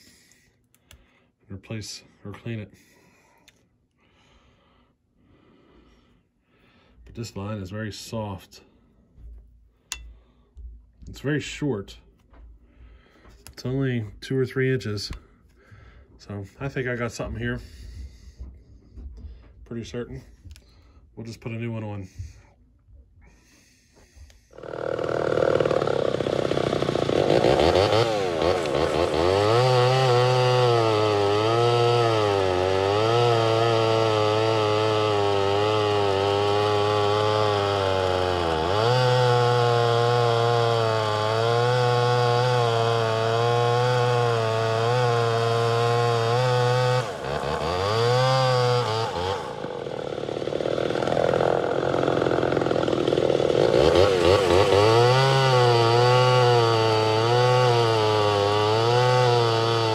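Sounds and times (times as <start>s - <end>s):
chainsaw cutting through log: 24.5s - 59.9s.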